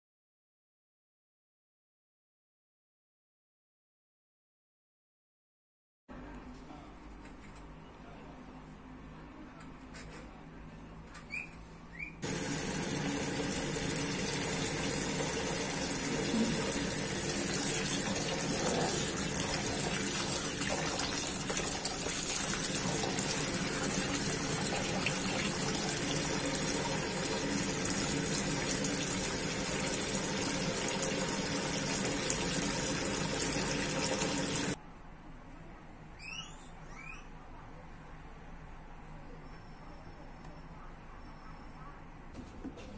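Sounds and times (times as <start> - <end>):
tap water pouring into bowl: 12.2 - 34.8.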